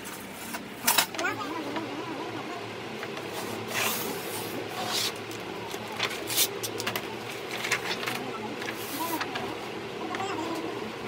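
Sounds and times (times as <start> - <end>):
paper rustling and crackling: 3.2 - 9.6.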